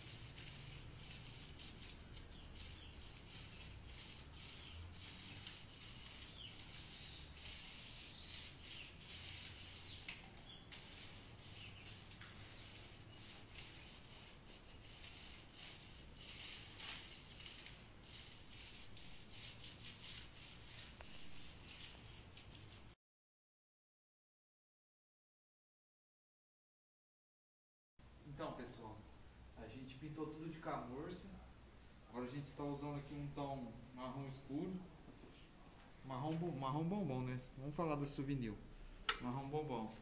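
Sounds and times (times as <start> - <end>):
paint roller rasping on rough render: 0.0 - 23.0.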